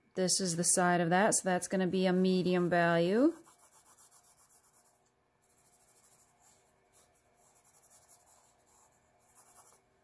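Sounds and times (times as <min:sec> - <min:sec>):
pencil scratching on paper: 0:03.2 - 0:10.0.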